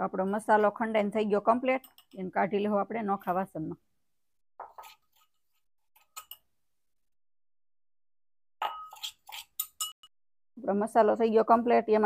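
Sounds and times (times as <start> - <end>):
steel vessels clinking and scraping: 6.0 - 6.4, 8.6 - 10.1.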